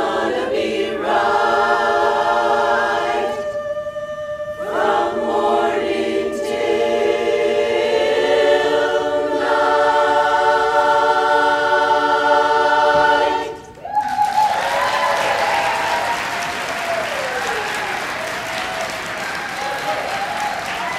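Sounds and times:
women singing a cappella: 0.0s - 13.7s
audience applause: 13.8s - 20.9s.

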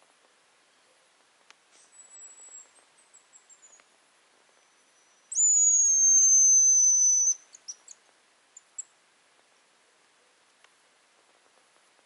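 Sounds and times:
faint high falling whistle: 5.3s - 7.4s.

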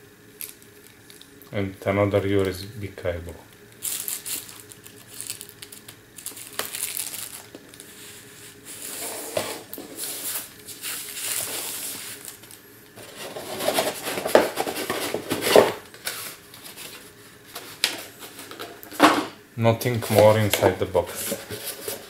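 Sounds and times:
plastic bag rustling and crinkling: 3.7s - 19.1s, 19.9s - 22.0s.

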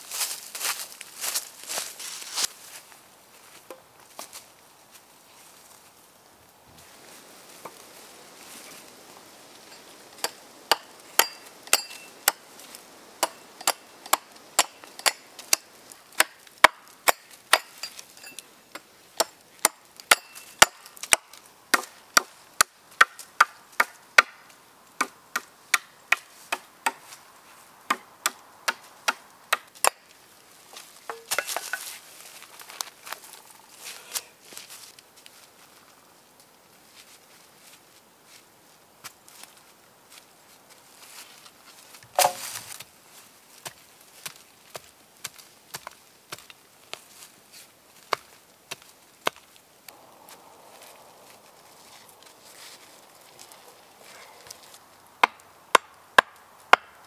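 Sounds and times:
blade chopping into wood: 42.2s - 42.4s.

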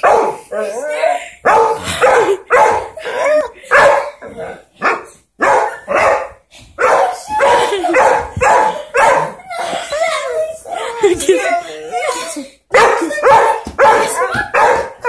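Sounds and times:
small dog barking: 4.8s - 9.4s, 12.8s - 15.0s.

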